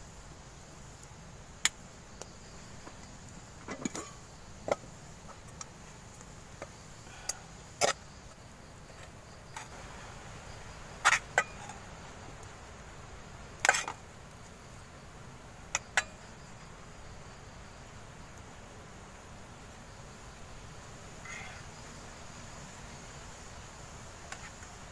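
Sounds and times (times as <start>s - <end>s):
faint forest background: 0.0s - 24.9s.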